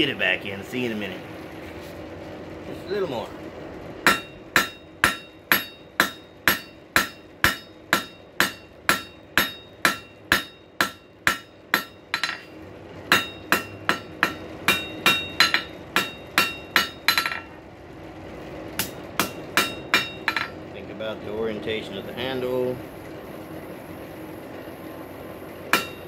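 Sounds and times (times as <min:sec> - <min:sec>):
hammer ringing on anvil: 0:04.1 - 0:12.5, 0:13.1 - 0:17.5, 0:18.8 - 0:20.6, 0:25.7 - 0:26.0.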